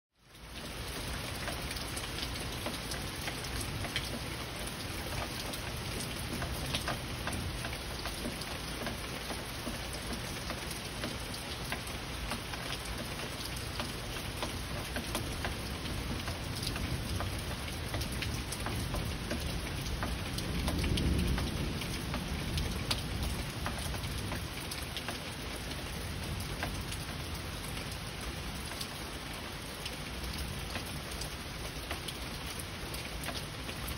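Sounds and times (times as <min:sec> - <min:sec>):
heavy rain falling: 0:00.2 - 0:33.9
rolling thunder: 0:18.9 - 0:24.3.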